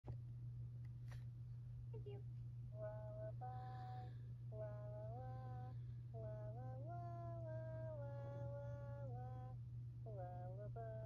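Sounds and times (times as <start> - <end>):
steady low hum: 0.1 - 11.0
high-pitched voice singing: 2.8 - 11.0.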